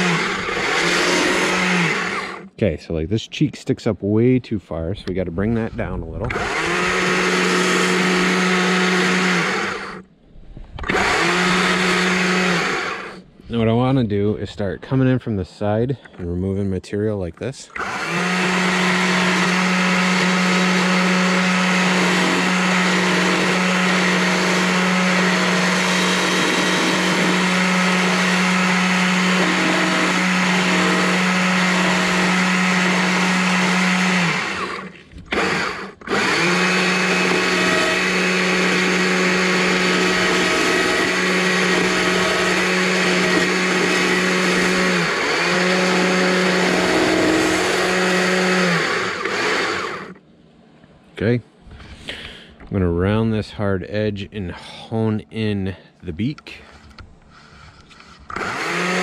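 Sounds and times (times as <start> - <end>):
electric chainsaw cutting wood: 0.0 - 2.6, 6.2 - 10.1, 10.8 - 13.3, 17.7 - 50.2, 57.9 - 59.0.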